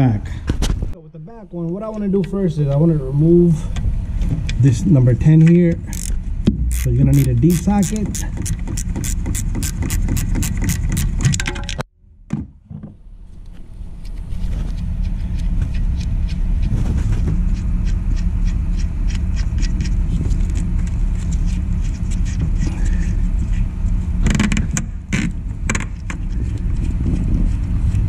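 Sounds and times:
steady low rumble: 0:00.0 - 0:12.3, 0:12.9 - 0:28.0
ratchet clicking: 0:05.9 - 0:11.4.

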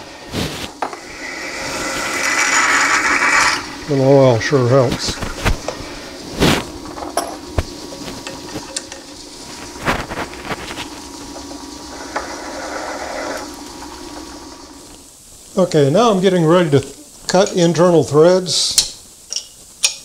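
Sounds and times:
drill cutting hiss: 0:00.0 - 0:07.9, 0:08.5 - 0:15.1
metal lathe running: 0:00.8 - 0:15.0.

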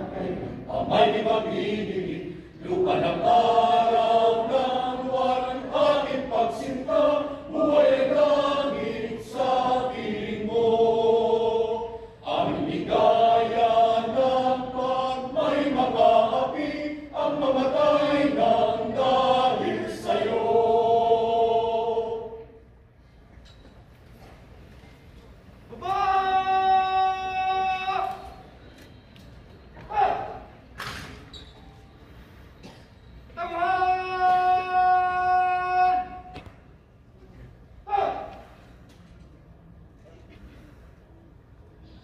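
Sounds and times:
choir singing slow song: 0:00.0 - 0:22.7.

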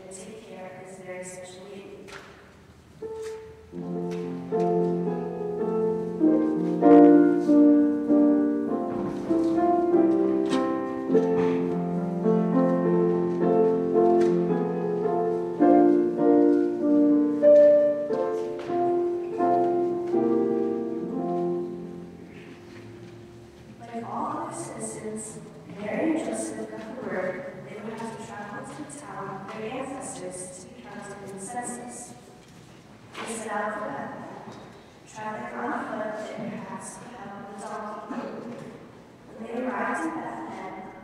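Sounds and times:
piano piece: 0:02.3 - 0:41.0
person speaking: 0:20.2 - 0:32.2.

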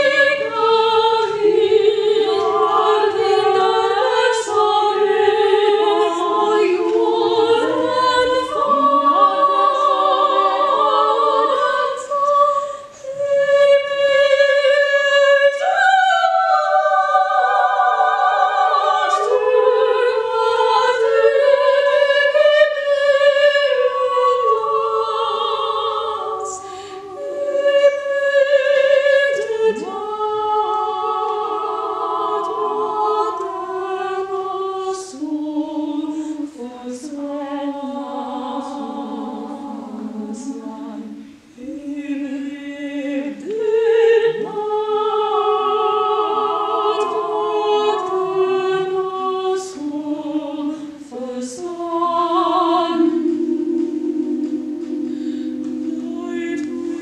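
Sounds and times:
women's choir singing: 0:00.0 - 0:57.0.

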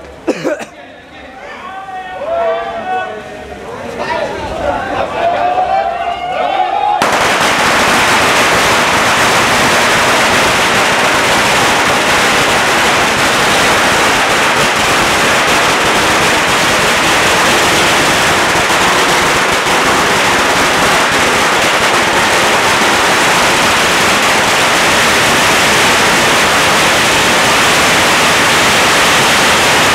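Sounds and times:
firecrackers crackling: 0:07.0 - 0:29.9.

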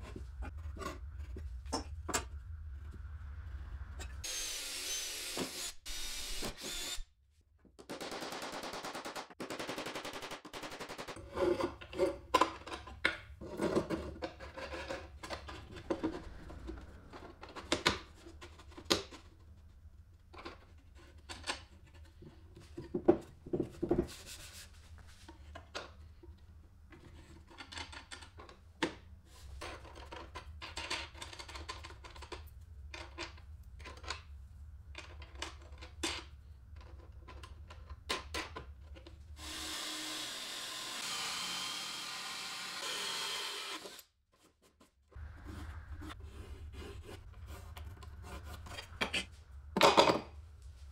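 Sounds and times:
steady drill: 0:04.2 - 0:07.1, 0:39.4 - 0:44.1.

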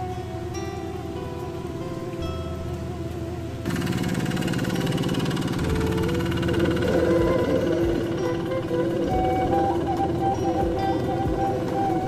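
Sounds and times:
guitar music: 0:00.0 - 0:12.0
diesel engine running: 0:03.6 - 0:12.0.

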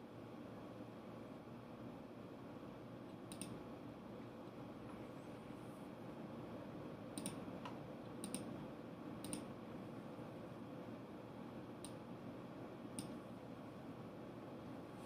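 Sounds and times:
low room hum: 0:00.0 - 0:15.0
computer mouse clicks: 0:03.1 - 0:03.6, 0:07.2 - 0:08.5, 0:09.2 - 0:09.5, 0:11.8 - 0:12.0, 0:13.0 - 0:13.2.

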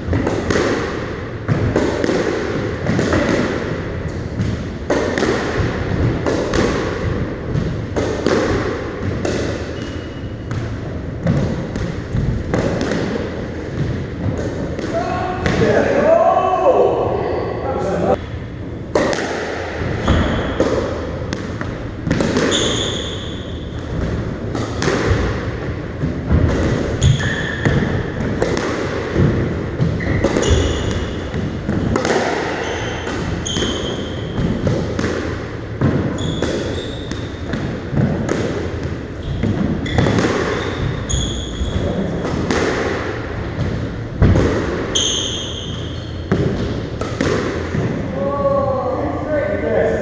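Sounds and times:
squash ball striking: 0:00.0 - 0:15.9, 0:18.1 - 0:48.2
shoes squeaking on wooden floor: 0:22.5 - 0:23.5, 0:36.1 - 0:37.1, 0:39.2 - 0:41.9.

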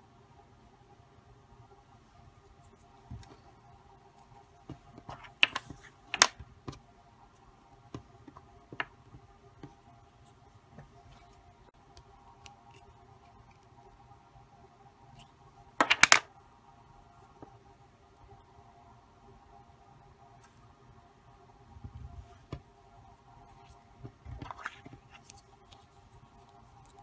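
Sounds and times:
hands handling modelling clay: 0:02.4 - 0:14.0, 0:15.1 - 0:16.3, 0:23.4 - 0:27.0.

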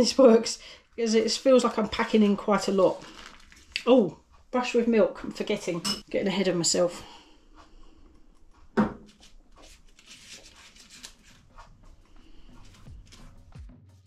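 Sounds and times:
pastry brush strokes: 0:09.1 - 0:13.4.

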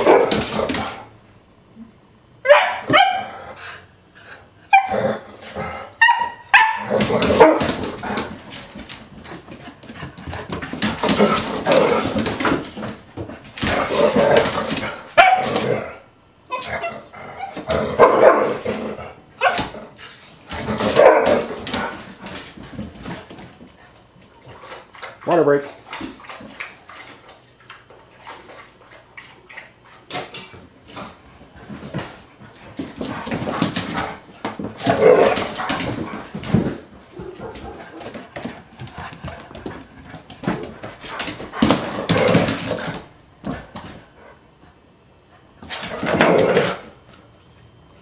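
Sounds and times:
dogs barking: 0:00.0 - 0:00.4, 0:02.4 - 0:03.4, 0:06.0 - 0:07.7, 0:18.0 - 0:18.6, 0:20.8 - 0:21.5
dogs scuffling: 0:06.8 - 0:15.9, 0:19.5 - 0:44.2.

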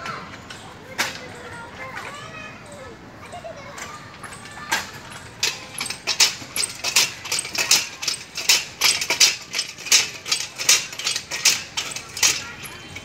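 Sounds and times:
metal exercise machine grating: 0:03.9 - 0:13.0.

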